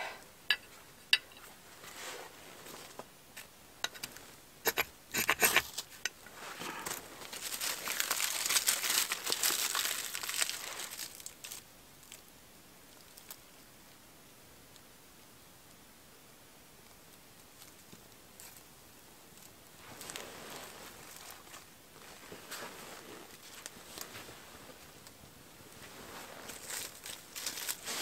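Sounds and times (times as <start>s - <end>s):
tinder crinkling and crumpling: 5.5s - 12.3s, 19.3s - 28.0s.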